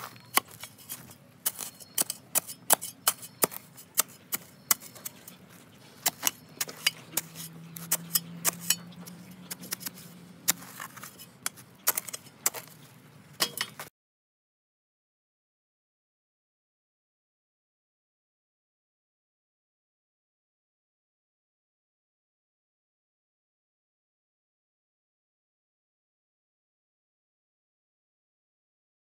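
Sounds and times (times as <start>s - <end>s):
shovel digging into sandy soil: 0.0s - 13.9s.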